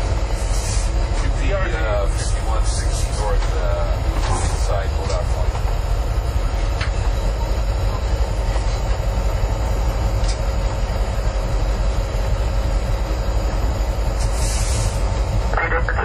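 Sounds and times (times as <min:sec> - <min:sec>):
locomotive engine rumble: 0:00.0 - 0:16.0.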